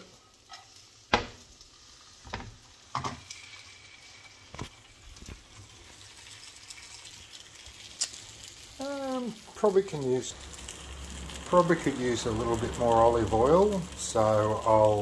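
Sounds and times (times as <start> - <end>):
pancake frying faint sizzle: 0.0 - 15.0.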